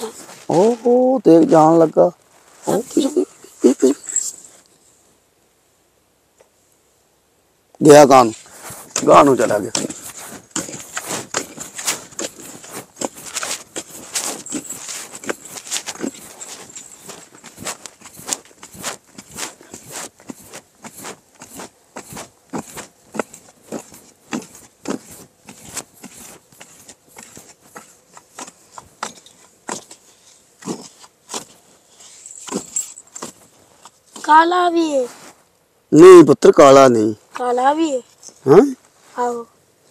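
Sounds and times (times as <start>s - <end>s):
digging tool scraping sandy soil: 0.0s - 3.2s, 8.0s - 35.4s.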